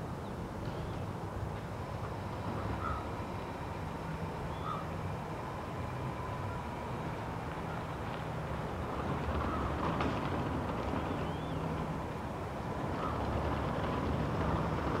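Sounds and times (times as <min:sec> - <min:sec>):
distant road traffic rumble: 0:00.0 - 0:15.0.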